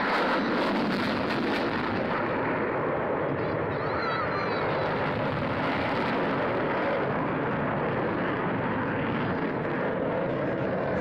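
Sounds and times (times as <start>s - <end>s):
jet flying overhead: 0.0s - 11.0s.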